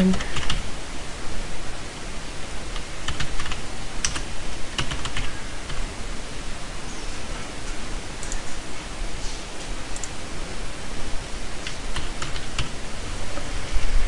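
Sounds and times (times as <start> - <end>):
steady background hiss: 0.0 - 14.0
keyboard keystrokes: 3.1 - 4.2.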